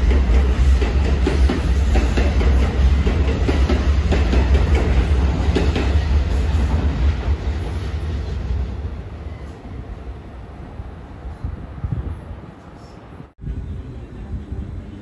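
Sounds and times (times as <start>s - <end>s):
train wheels clattering over rail joints: 0.0s - 7.9s
heavy low train rumble: 0.0s - 15.0s.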